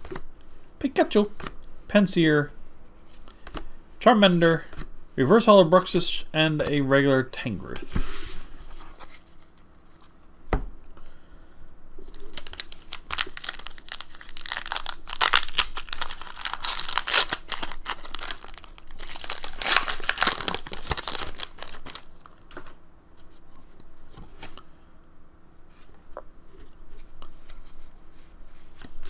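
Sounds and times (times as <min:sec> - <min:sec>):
foil wrapper tearing and crinkling: 0:12.2 - 0:22.3.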